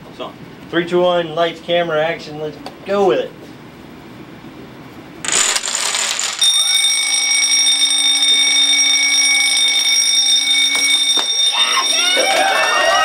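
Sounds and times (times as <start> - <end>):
dominoes clattering down: 5.3 - 6.9
electric alarm bell ringing: 5.3 - 13.0.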